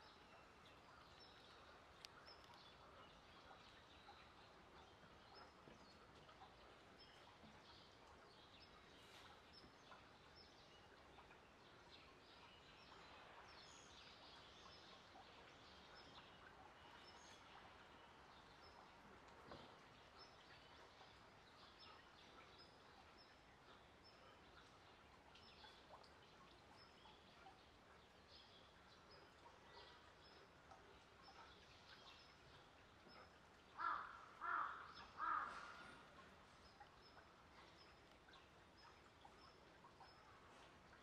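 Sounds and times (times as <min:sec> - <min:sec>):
faint small birds chirping: 0:00.0 - 0:41.0
crow cawing: 0:33.8 - 0:35.7.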